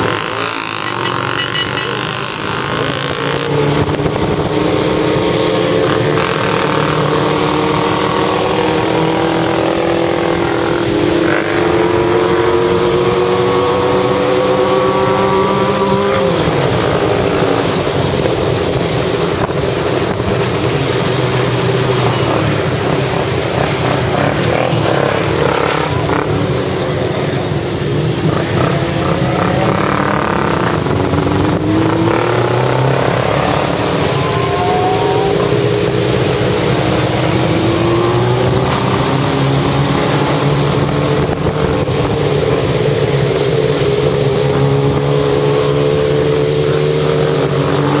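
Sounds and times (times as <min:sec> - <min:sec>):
motorcycle engines running: 0:00.0 - 0:48.0
wind rush on microphone: 0:33.8 - 0:48.0.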